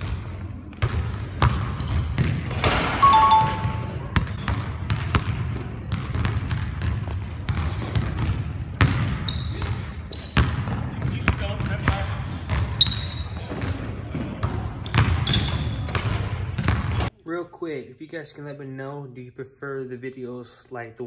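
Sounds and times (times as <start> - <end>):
basketball bouncing: 0.7 - 17.1
sneaker squeaks on floor: 3.0 - 5.2, 6.3 - 7.7, 8.7 - 10.8, 12.4 - 14.2, 14.8 - 17.1.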